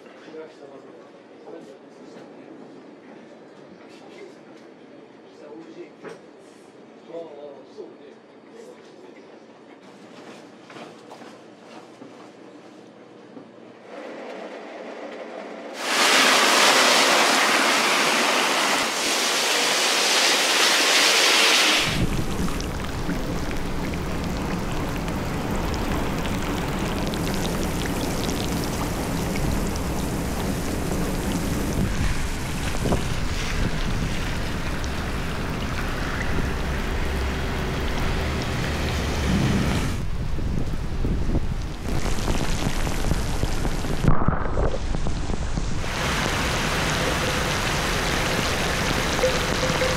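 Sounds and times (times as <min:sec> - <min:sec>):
rain pelting flooded road: 0:15.8 - 0:44.1, 0:44.8 - 0:49.9
pouring rain hiss: 0:15.8 - 0:49.9
low rumble: 0:36.4 - 0:45.9.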